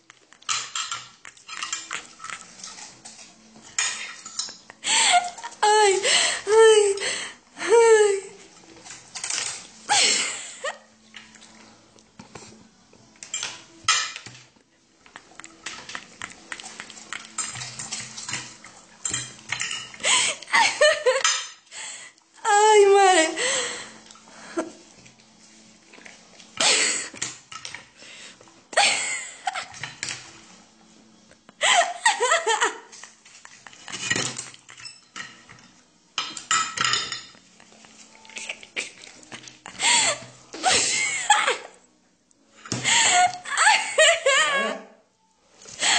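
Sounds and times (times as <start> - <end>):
plate and cutlery clinking: 0.4 - 4.7, 13.2 - 14.4, 15.5 - 20.0, 21.1 - 21.6, 33.7 - 38.3
fork clinking on ceramic plate: 19.0 - 20.0
people laughing: 20.2 - 21.3, 42.9 - 44.9.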